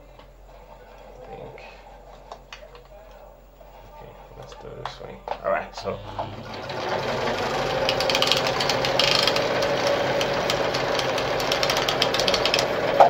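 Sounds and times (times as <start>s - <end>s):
sewing machine running: 5.9s - 13.0s
fast fine mechanical ticking: 6.4s - 13.0s.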